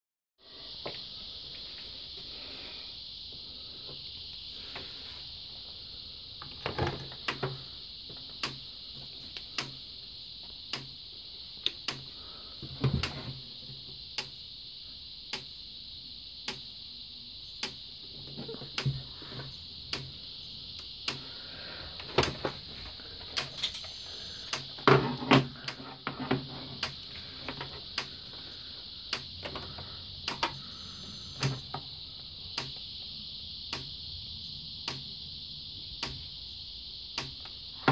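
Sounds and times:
high-pitched hiss: 0.4 - 37.9
electric fence charger ticking: 7.0 - 12.3, 14.0 - 14.5, 15.3 - 15.7, 16.4 - 16.8, 17.4 - 18.0, 18.7 - 21.4, 23.2 - 24.8, 26.8 - 28.3, 28.9 - 34.1, 34.8 - 35.3, 36.0 - 36.4, 37.0 - 37.8.

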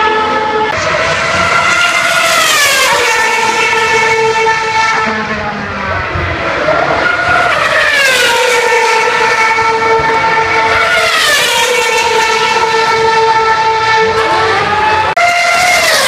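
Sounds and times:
racing car engine at high revs: 0.0 - 16.0.

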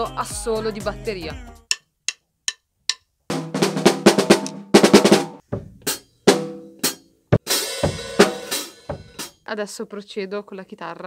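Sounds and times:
drum kit solo: 3.3 - 9.4.

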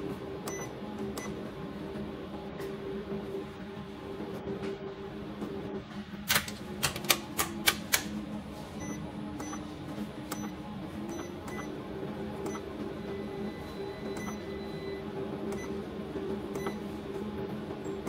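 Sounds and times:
steady low hum: 0.0 - 18.0
push buttons clicking: 6.3 - 8.2.

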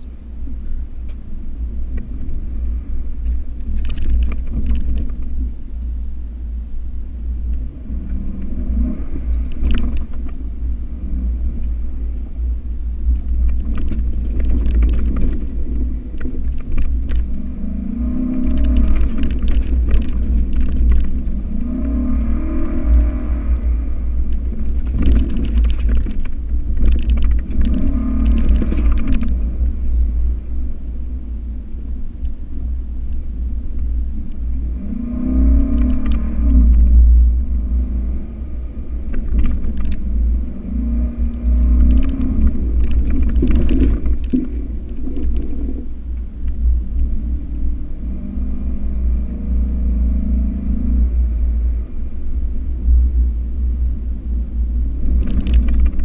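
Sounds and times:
engine rumble inside truck cab: 0.0 - 56.0
rattling and clatter: 3.2 - 5.6, 9.2 - 31.0, 35.6 - 47.8, 52.8 - 56.0.

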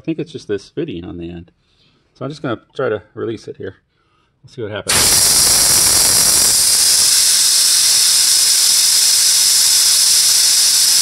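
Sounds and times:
compressed air hissing from hose: 4.9 - 11.0.

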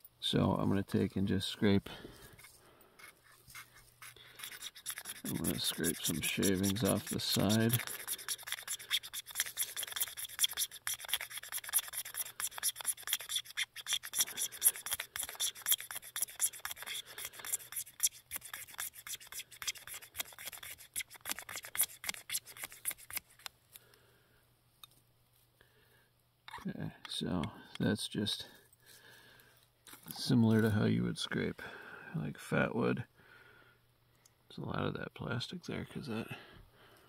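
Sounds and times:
knife scraping plastic tube: 2.3 - 23.5.

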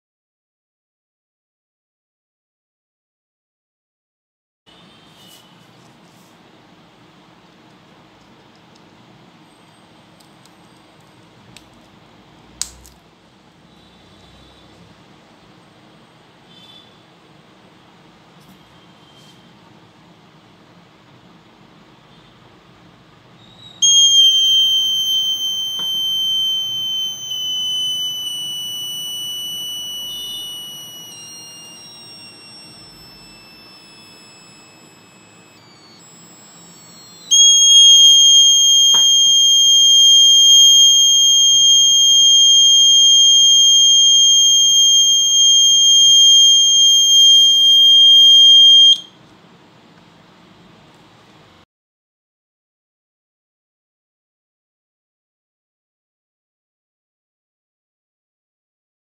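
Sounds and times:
piezo buzzer high tone: 23.8 - 49.2.

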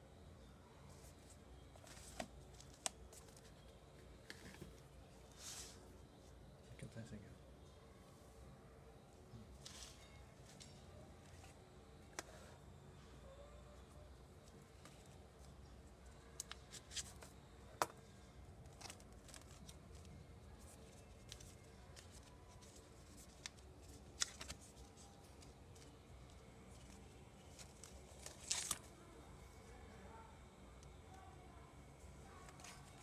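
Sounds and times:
paper rustling: 18.7 - 29.1.

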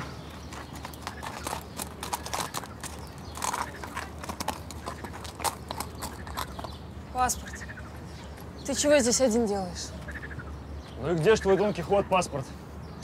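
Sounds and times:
horse hooves clip-clopping on dirt: 0.0 - 6.9.

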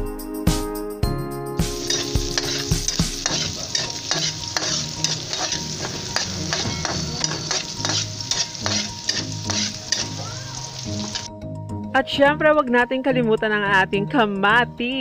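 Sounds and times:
onion sizzling in hot oil: 1.7 - 11.3
metal spatula scraping a pan: 1.8 - 11.3.

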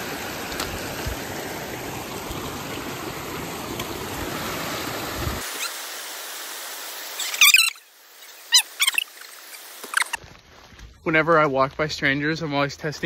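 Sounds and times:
water rushing over rocks: 0.0 - 10.2
short high wavering sounds: 7.1 - 10.2.

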